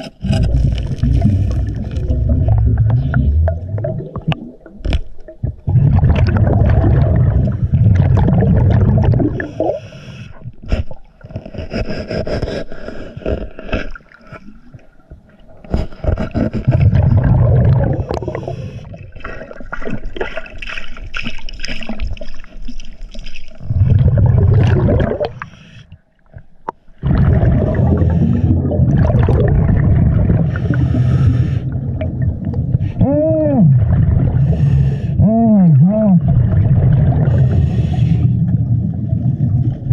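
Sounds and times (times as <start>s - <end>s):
exhaled bubbles underwater: 0.0s - 11.2s, 16.3s - 22.8s, 23.5s - 25.6s, 27.0s - 39.9s.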